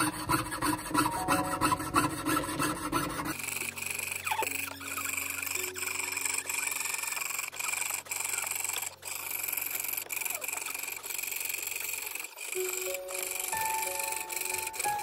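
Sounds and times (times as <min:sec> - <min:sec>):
piercing saw cutting brass plate: 0:00.0 - 0:09.2, 0:12.3 - 0:15.0
soft music: 0:00.1 - 0:07.5, 0:12.6 - 0:15.0.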